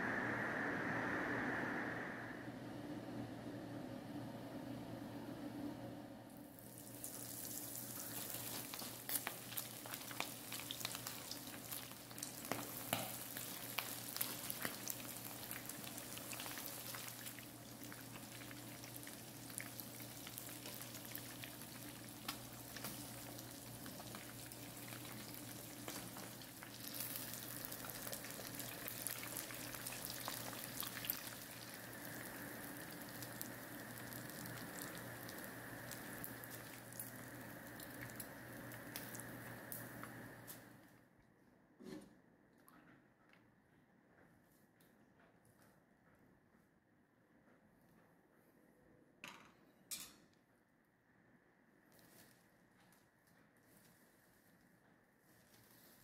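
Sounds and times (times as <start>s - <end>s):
fish sizzling in hot oil: 6.6s - 40.2s
oil popping and crackling: 6.6s - 40.6s.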